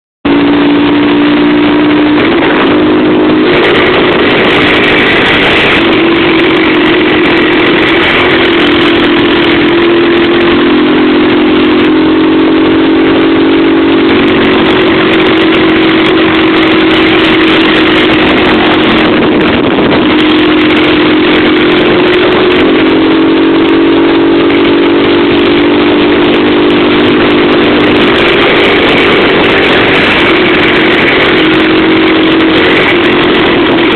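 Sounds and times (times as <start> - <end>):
motorcycle engine running: 0.2 - 33.9
wind noise on microphone: 0.2 - 33.9.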